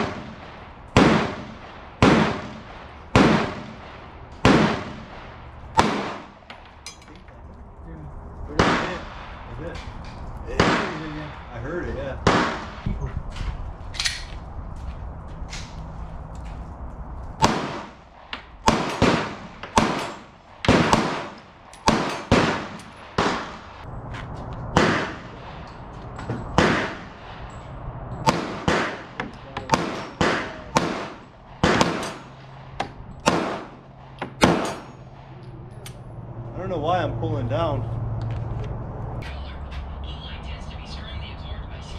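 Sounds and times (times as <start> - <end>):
pistol shots with echo: 0.0 - 6.6, 8.5 - 9.5, 10.6 - 11.4, 12.2 - 12.9, 17.4 - 18.0, 18.7 - 23.8, 24.8 - 25.5, 26.5 - 27.4, 28.2 - 35.0.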